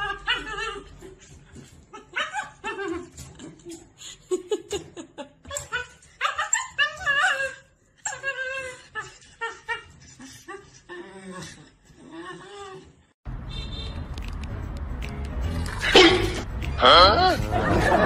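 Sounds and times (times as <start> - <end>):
puppy whining and howling: 0.0 - 3.8, 5.5 - 13.0
people laughing: 17.1 - 18.0.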